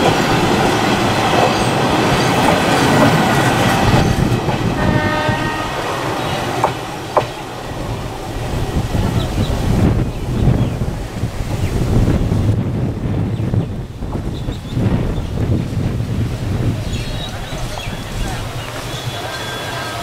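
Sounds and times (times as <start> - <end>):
train wheels rumbling and clicking: 0.0 - 20.0
train horn: 3.7 - 6.8, 18.9 - 20.0.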